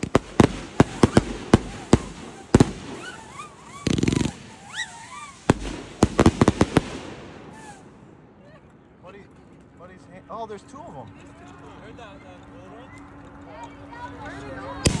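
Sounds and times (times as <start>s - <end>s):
fireworks bangs: 0.0s - 8.2s, 14.8s - 15.0s
fireworks whistles: 0.0s - 8.2s
fireworks crackling burst: 0.0s - 8.3s, 14.8s - 15.0s.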